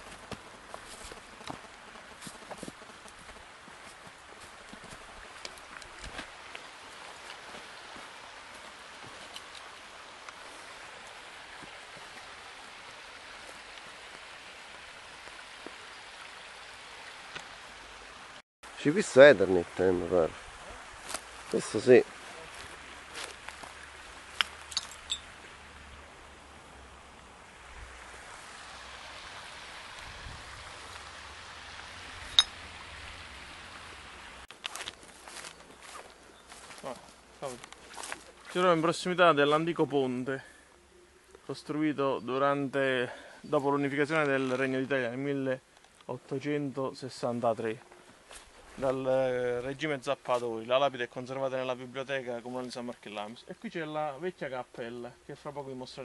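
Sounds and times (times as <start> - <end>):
footsteps in dry leaves: 0.0 - 9.3, 20.9 - 25.0, 34.5 - 39.0
stream flowing: 0.0 - 56.0.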